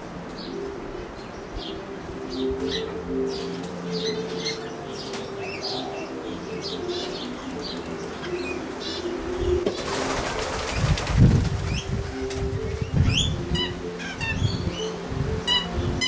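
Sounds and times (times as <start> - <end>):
dove cooing: 0.0 - 16.0
small birds chirping: 0.3 - 9.9
wings flapping: 9.5 - 13.0.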